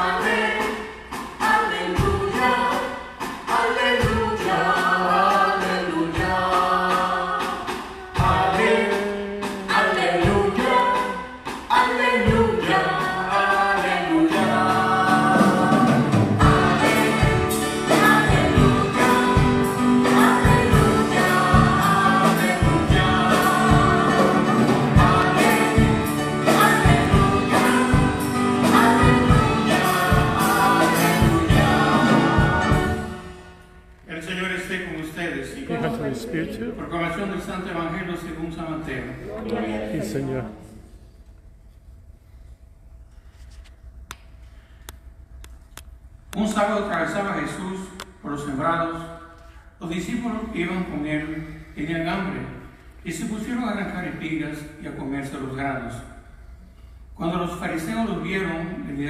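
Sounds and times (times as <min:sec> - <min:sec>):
women singing into microphones: 0:01.4 - 0:33.1
instrumental accompaniment: 0:07.4 - 0:34.0.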